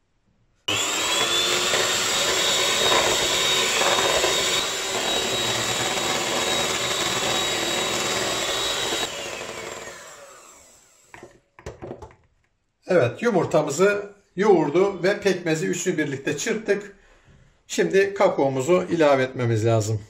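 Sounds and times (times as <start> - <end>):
electric hand mixer whining: 0.7 - 11.4.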